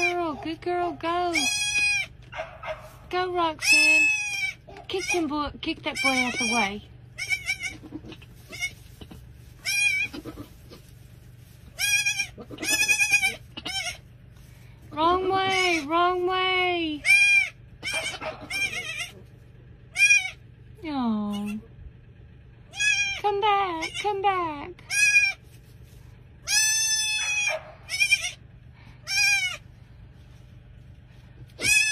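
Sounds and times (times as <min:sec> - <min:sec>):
goat kid bleating: 0:00.0 - 0:02.4, 0:03.5 - 0:11.0, 0:11.6 - 0:14.4, 0:15.1 - 0:16.2, 0:16.8 - 0:20.5, 0:21.3 - 0:21.6, 0:22.7 - 0:25.6, 0:26.4 - 0:29.8, 0:31.4 - 0:31.9.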